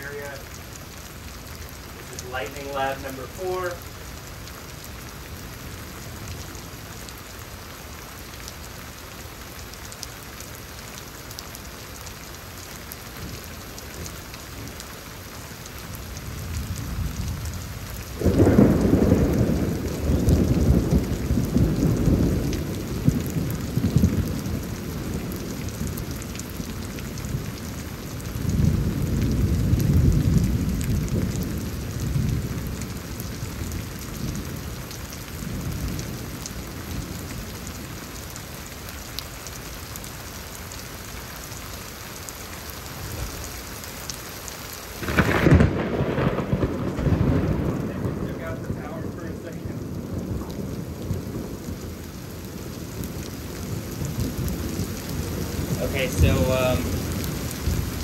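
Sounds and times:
steady rain: 0.0s - 58.0s
thunder rumbling and crashing: 16.4s - 26.0s, 45.0s - 52.0s, 53.0s - 58.0s.

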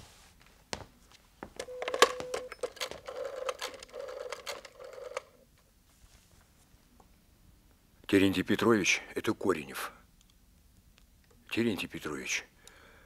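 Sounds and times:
rotary dial whirring: 2.2s - 5.4s.

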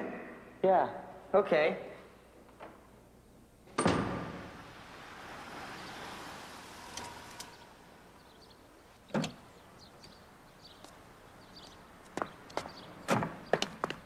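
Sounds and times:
car rolling to a stop: 4.0s - 8.7s.

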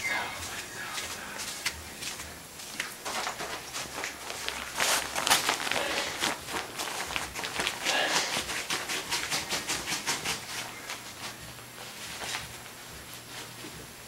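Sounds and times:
dog digging at a duvet: 3.2s - 11.3s.

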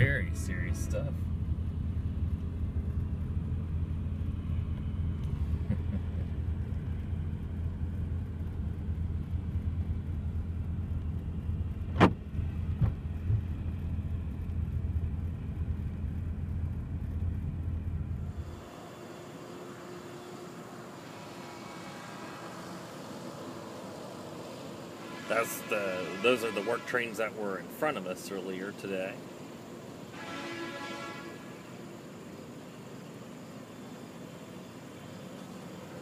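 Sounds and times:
car idling rumble: 0.0s - 19.0s.

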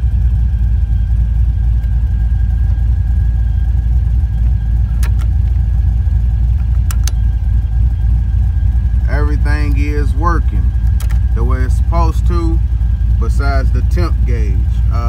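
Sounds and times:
car engine idling: 0.0s - 15.0s
sharp clicks: 4.4s - 5.6s, 6.5s - 7.3s, 10.7s - 11.4s.

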